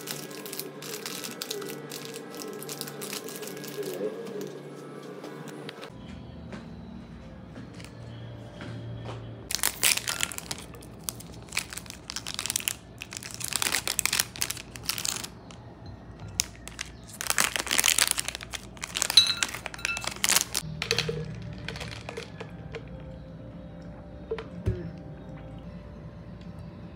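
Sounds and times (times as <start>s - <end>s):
packaging crinkling: 0.0s - 4.5s, 9.5s - 15.6s, 16.3s - 23.0s.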